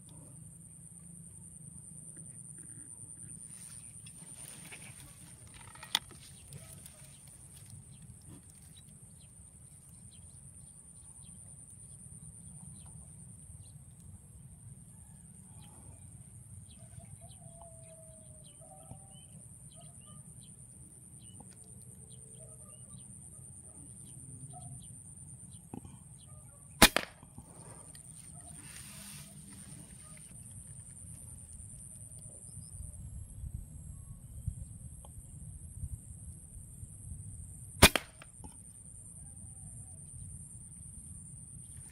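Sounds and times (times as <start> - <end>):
sharp click: 26.8 - 27.2, 37.8 - 38.6.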